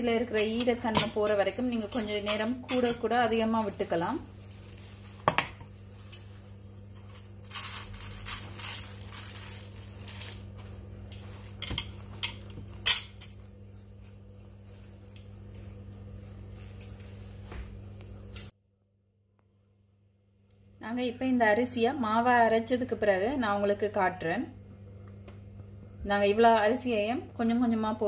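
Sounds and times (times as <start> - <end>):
tissue paper rustling: 3.5 - 11.6.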